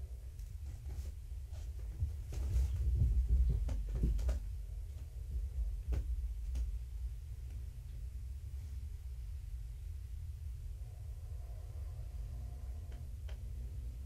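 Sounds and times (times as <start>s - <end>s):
steady low hum: 0.0s - 14.0s
kittens knocking and rustling: 0.7s - 6.9s.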